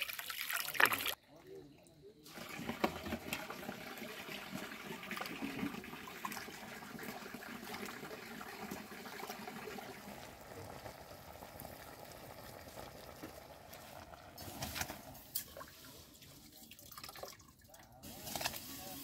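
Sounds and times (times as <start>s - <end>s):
water running into metal pot: 0.0s - 1.2s, 2.3s - 15.9s
water bubbling at the boil: 2.2s - 15.8s.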